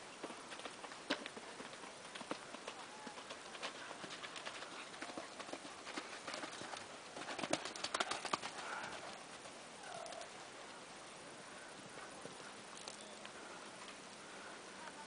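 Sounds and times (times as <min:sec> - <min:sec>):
horse hoofbeats on sand: 0:00.2 - 0:09.5.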